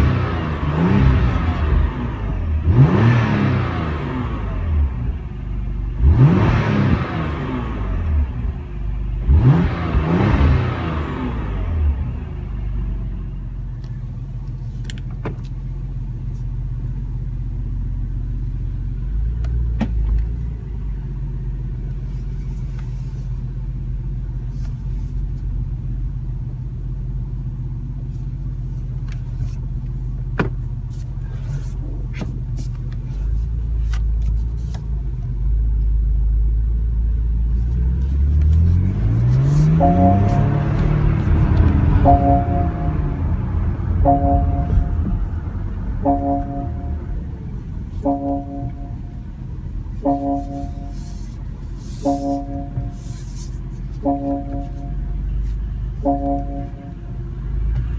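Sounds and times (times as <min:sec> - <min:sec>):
car engine revving: 0:00.0 - 0:12.6, 0:37.6 - 0:57.9
car engine idling: 0:11.2 - 0:57.9.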